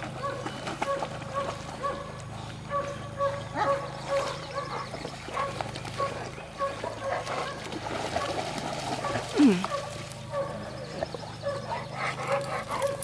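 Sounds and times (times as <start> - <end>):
light splashing water: 0.0 - 10.3
dog barking: 0.2 - 2.1, 2.7 - 7.6, 9.0 - 10.6.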